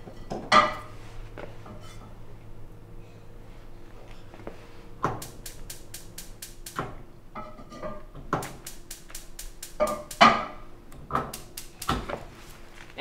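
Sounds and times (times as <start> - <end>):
spark igniter clicking: 5.1 - 7.0, 8.3 - 12.7.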